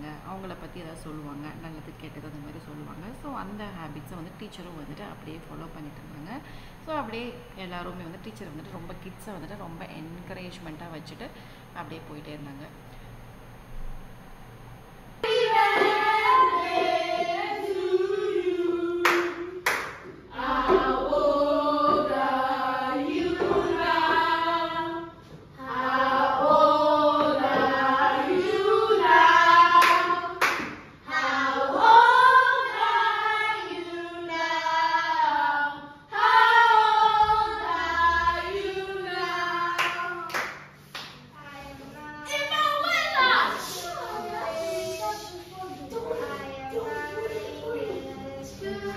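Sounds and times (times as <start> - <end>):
children singing in unison: 15.2 - 19.6, 20.3 - 40.3, 46.0 - 48.9
sharp claps: 19.0 - 20.2, 29.8 - 30.9, 39.8 - 41.3.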